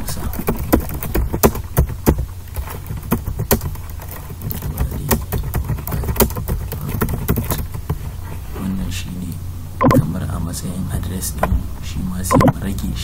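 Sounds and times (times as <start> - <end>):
steady low hum: 0.0 - 13.0
keyboard keystroke clicks: 12.3 - 12.6.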